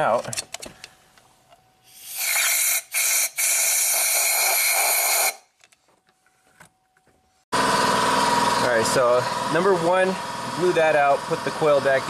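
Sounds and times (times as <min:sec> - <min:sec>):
compressed air blowgun hissing: 0:01.9 - 0:05.4
motor hum: 0:07.0 - 0:12.0.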